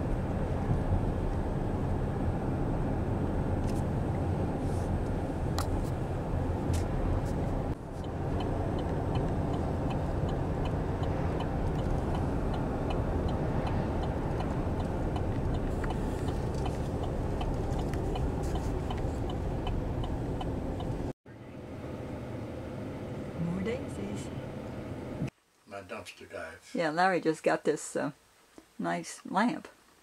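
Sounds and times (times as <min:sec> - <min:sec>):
car road and engine noise: 0:00.0 - 0:25.4
faint regular ticking: 0:07.7 - 0:21.1.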